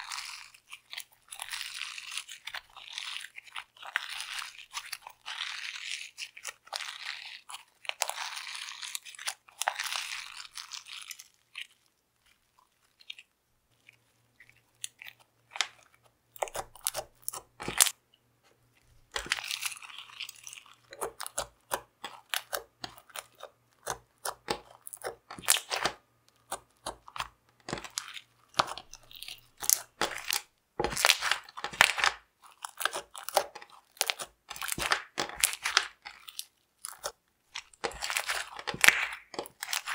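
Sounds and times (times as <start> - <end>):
slime squished by hand: 19.1 - 39.9.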